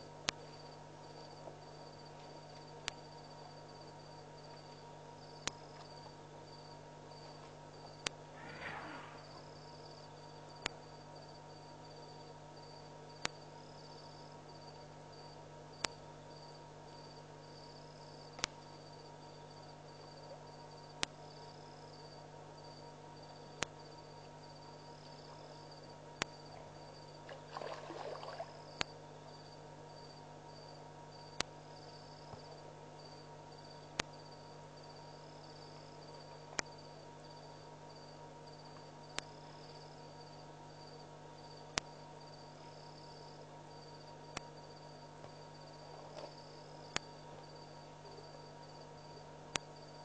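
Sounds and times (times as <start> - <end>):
low hum: 0.0 - 16.0
crickets chirping: 0.0 - 50.0.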